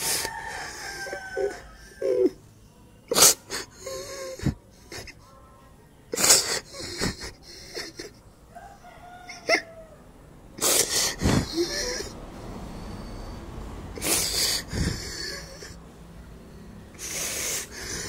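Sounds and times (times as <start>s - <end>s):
rooster crowing: 0.0s - 2.4s, 8.5s - 10.2s
sniffling: 3.1s - 5.2s, 6.1s - 8.2s, 10.6s - 13.4s, 14.0s - 15.9s, 16.9s - 18.0s
man sobbing: 6.2s - 8.2s.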